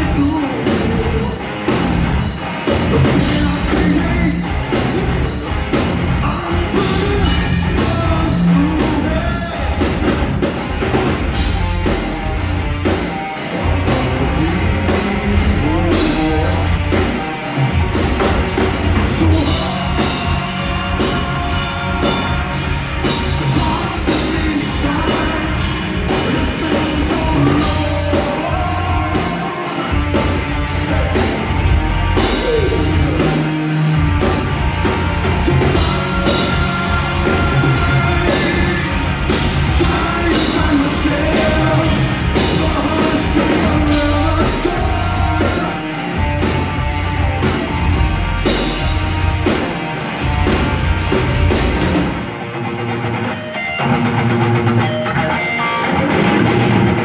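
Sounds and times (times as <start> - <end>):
singer singing into a microphone: 0.0 - 1.6, 3.0 - 5.2, 6.1 - 10.2, 13.5 - 16.9, 18.9 - 31.4, 35.4 - 46.0
drum kit: 0.0 - 52.6, 53.4 - 57.0
bass guitar: 0.0 - 57.0
electric guitars: 0.0 - 57.0.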